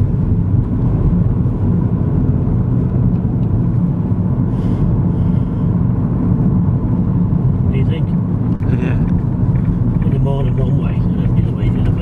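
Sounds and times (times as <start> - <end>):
car engine and tyre noise: 0.0 - 12.0.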